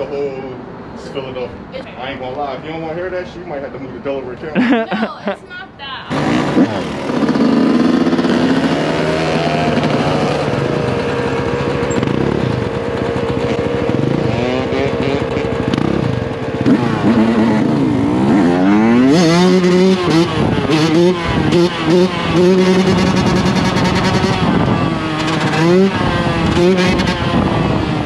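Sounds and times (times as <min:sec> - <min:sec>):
dirt bike engine revving: 0:06.1 - 0:28.0.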